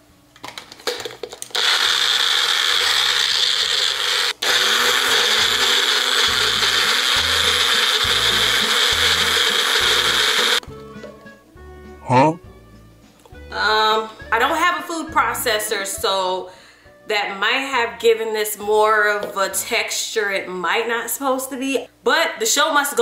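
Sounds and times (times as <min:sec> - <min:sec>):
blender motor whirring: 0:01.4 - 0:10.6.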